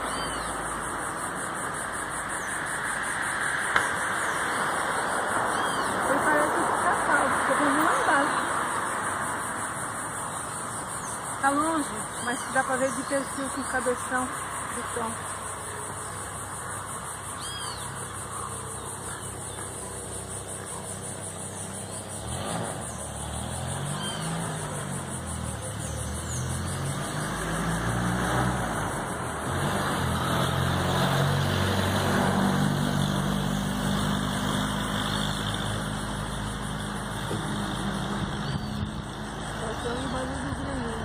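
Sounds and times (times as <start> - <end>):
engine running: 19.2 - 41.0.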